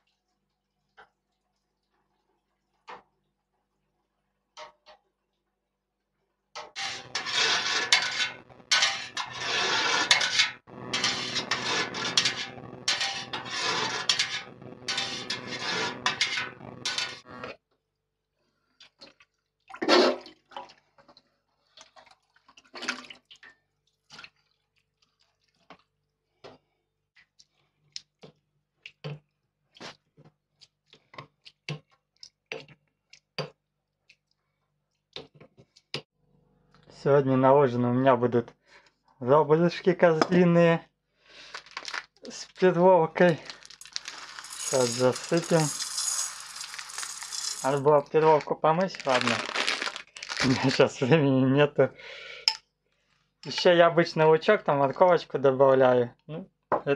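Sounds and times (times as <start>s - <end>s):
water running: 43.2s - 48.4s.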